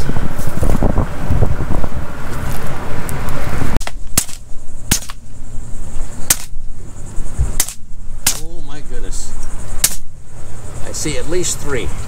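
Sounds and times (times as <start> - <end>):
air rifle shots cracking: 3.8 - 5.2, 6.3 - 6.6, 7.6 - 8.5.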